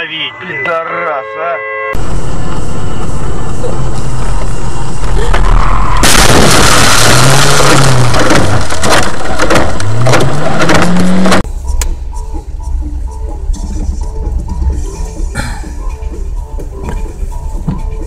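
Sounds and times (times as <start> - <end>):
car crash knocks and crunches: 5.2 - 11.4.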